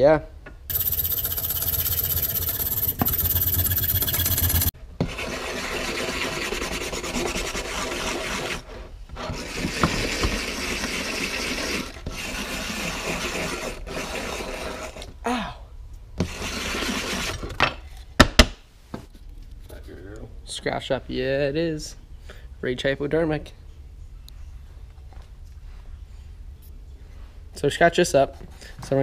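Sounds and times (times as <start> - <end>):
steady tool noise: 0.7 - 8.7
scratchy rubbing of plate: 0.7 - 11.6.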